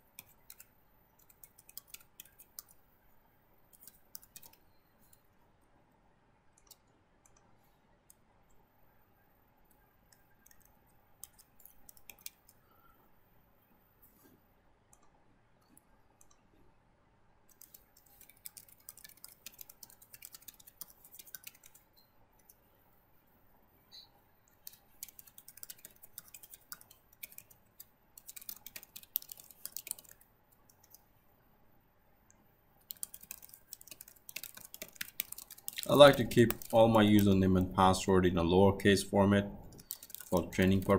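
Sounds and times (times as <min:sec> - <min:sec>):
computer keyboard typing: 0:00.0 - 0:02.9, 0:03.7 - 0:05.3, 0:06.6 - 0:07.5, 0:09.7 - 0:12.6, 0:17.5 - 0:22.6, 0:24.5 - 0:31.1, 0:32.8 - 0:38.0, 0:39.6 - 0:40.9.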